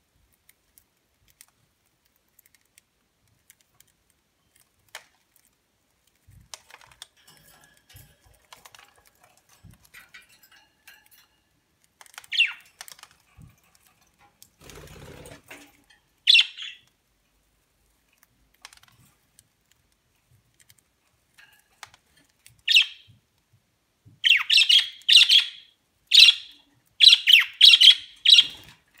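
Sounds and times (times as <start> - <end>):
budgerigars chirping: 24.2 - 28.6.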